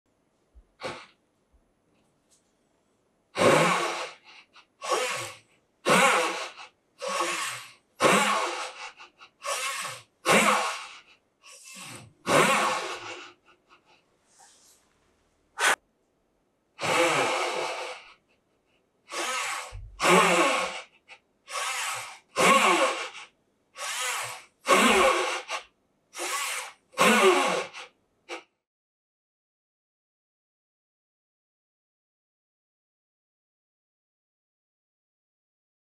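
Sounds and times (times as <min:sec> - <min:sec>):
saw rasping through wood: 0:03.4 - 0:13.8, 0:15.6 - 0:15.8, 0:19.1 - 0:25.6, 0:26.2 - 0:28.5.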